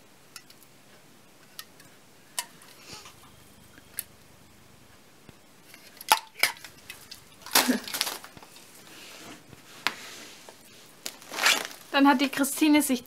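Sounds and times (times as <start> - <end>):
drink cans clinking: 5.7 - 8.4.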